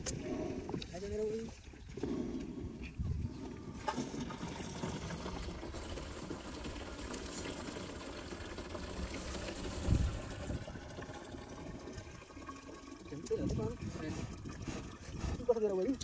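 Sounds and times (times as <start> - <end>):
water pouring into pipe: 3.4 - 16.0.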